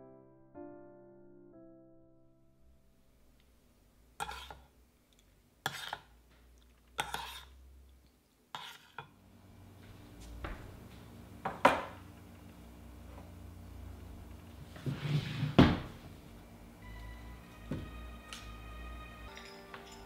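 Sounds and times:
fork scraping a metal saucepan: 4.2s - 4.7s, 5.6s - 6.1s, 7.0s - 7.6s, 8.5s - 9.1s.

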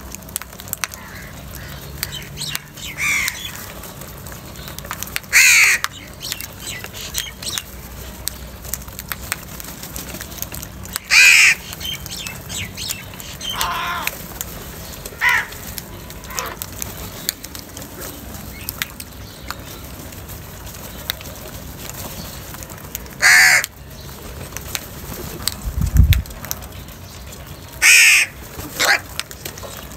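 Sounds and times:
crows cawing: 0.8s - 2.2s, 2.9s - 3.6s, 5.3s - 5.9s, 11.0s - 11.6s, 13.4s - 14.2s, 15.2s - 15.6s, 16.2s - 16.6s, 23.2s - 23.8s, 27.8s - 29.0s.

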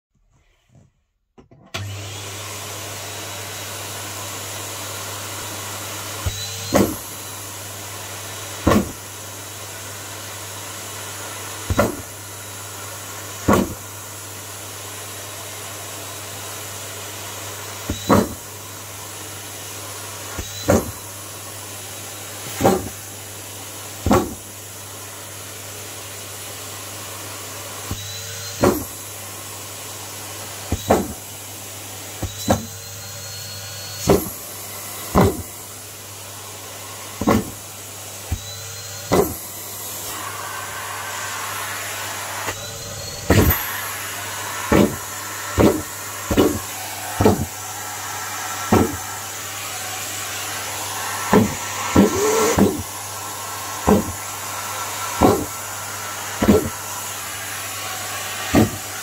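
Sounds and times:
vacuum cleaner running: 1.6s - 59.0s
marshmallow thwack in vacuum hose: 6.3s - 7.0s, 8.6s - 9.0s, 11.7s - 12.1s, 13.4s - 13.8s, 17.9s - 18.4s, 20.7s - 21.0s, 22.5s - 23.0s, 24.0s - 24.4s, 28.6s - 28.9s, 30.7s - 31.2s, 34.0s - 34.4s, 35.1s - 35.5s, 37.2s - 37.6s, 39.1s - 39.4s, 43.3s - 43.7s, 44.7s - 47.6s, 48.7s - 49.0s, 51.3s - 52.9s, 53.8s - 54.2s, 55.2s - 55.5s, 56.4s - 56.8s, 58.5s - 58.8s.

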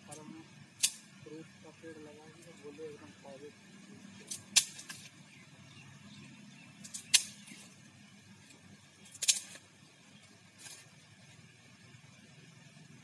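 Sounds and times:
sharp clicks: 6.8s - 7.6s.

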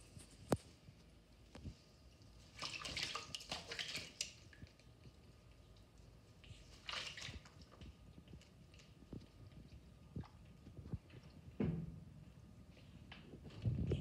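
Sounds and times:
parrot splashing in water: 2.5s - 4.9s, 6.6s - 7.9s.

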